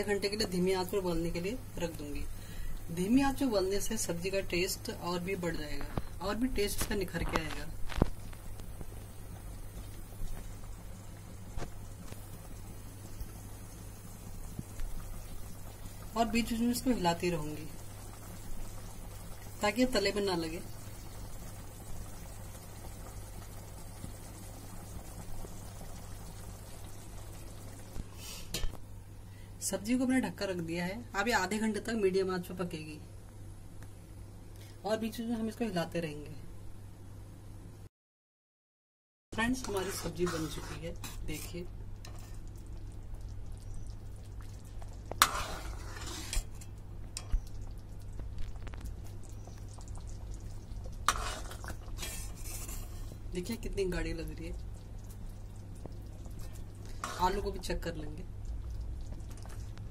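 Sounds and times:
curry bubbling: 0.0 - 28.8, 39.4 - 59.9
low steady hum: 0.0 - 37.9, 39.3 - 59.9
ladle scraping and clinking pan: 45.2 - 46.7, 51.1 - 53.0.

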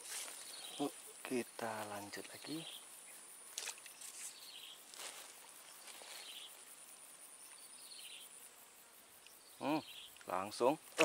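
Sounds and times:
waterside ambience: 0.0 - 11.0
man talking: 0.8 - 2.7, 9.6 - 11.0.

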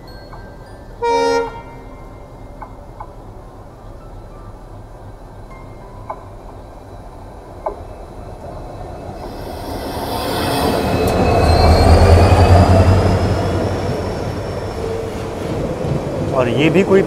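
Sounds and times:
diesel locomotive engine rumble: 0.0 - 17.0
train coaches rolling past: 0.0 - 17.0
high-pitched wheel squealing: 9.2 - 15.0.

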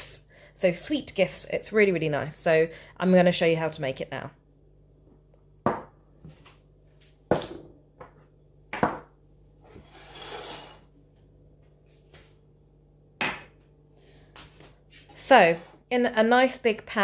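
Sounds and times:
bowls knocking on worktop: 5.6 - 6.0, 7.3 - 9.1, 13.2 - 13.6
ceramic bowl scraping across counter: 9.6 - 11.0.

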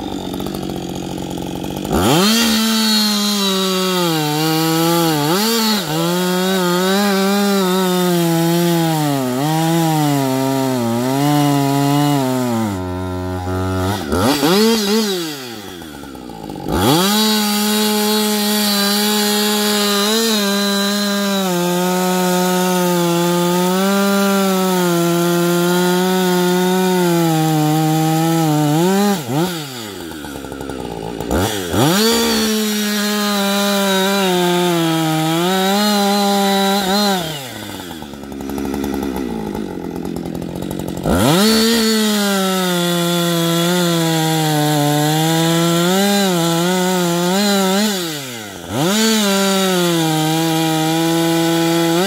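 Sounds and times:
chainsaw cutting wood: 0.0 - 52.0.

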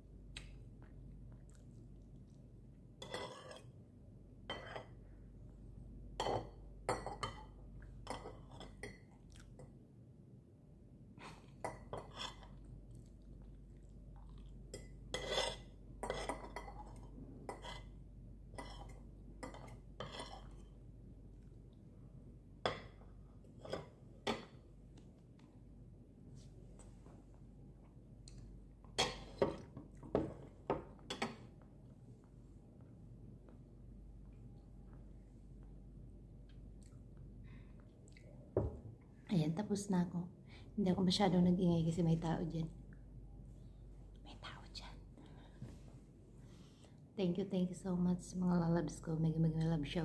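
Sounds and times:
soft chewing: 0.2 - 3.8, 7.3 - 9.8, 11.2 - 18.0, 26.4 - 30.1, 31.3 - 38.6.

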